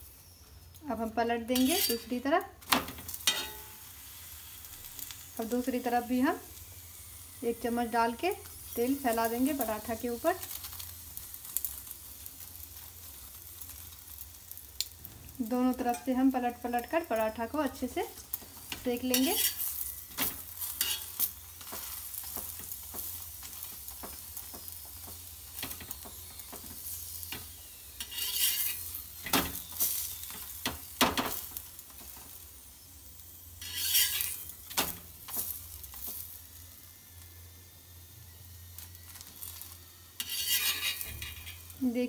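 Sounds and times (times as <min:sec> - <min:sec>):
flatbread sizzling on a pan: 0:00.0 - 0:42.0
spatula scraping a pan: 0:01.5 - 0:02.2, 0:18.5 - 0:27.4, 0:28.0 - 0:31.4, 0:33.6 - 0:36.2, 0:40.2 - 0:41.8.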